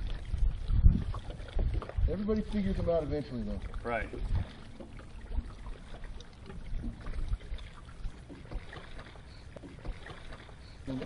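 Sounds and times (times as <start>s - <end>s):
low rumble and thumps on microphone: 0.0s - 3.0s, 3.6s - 8.8s
water lapping against boat hull: 0.0s - 11.0s.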